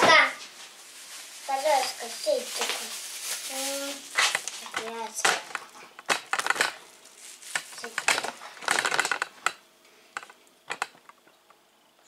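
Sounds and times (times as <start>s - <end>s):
crinkly rustle: 0.2s - 9.4s
kitchen clicks and knocks: 4.2s - 6.8s.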